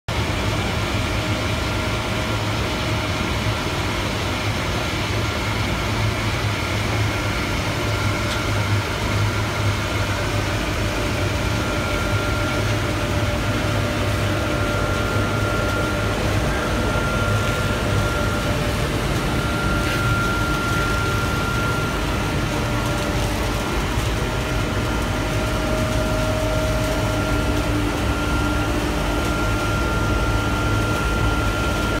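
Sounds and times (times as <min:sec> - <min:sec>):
thin steady whine: 0:00.1 - 0:32.0
burner flame rushing: 0:00.3 - 0:32.0
low hum: 0:10.2 - 0:32.0.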